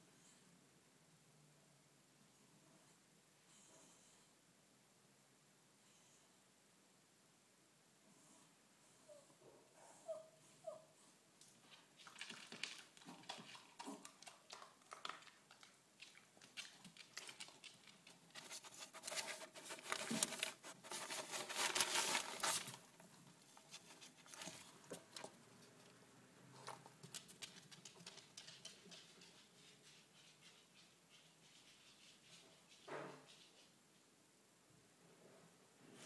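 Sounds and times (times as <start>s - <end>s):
dog claws on wooden floor: 11.5s - 22.8s, 26.6s - 33.7s
dog scuffling: 11.6s - 25.8s.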